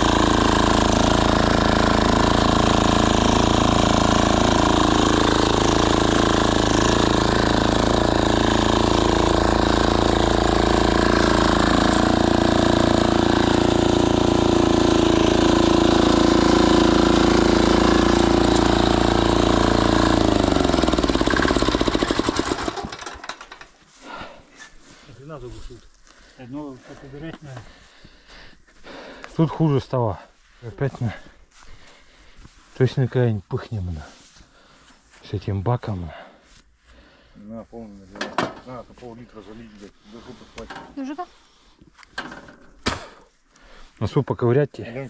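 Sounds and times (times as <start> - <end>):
diesel tractor engine running: 0.0 - 23.7.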